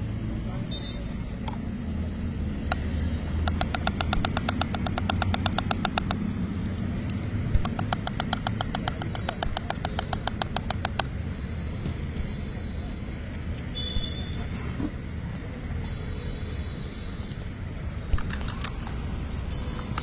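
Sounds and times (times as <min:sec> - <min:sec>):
low traffic hum: 0:00.0 - 0:20.0
whisk clicking against metal mug: 0:03.5 - 0:06.1, 0:07.6 - 0:11.1.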